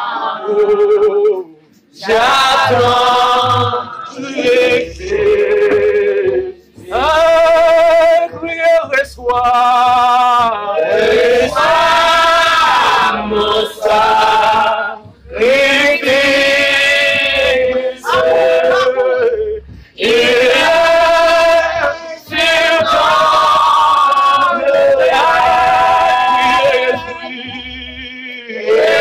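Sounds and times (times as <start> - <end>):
voices singing worship song: 0.0 - 29.0.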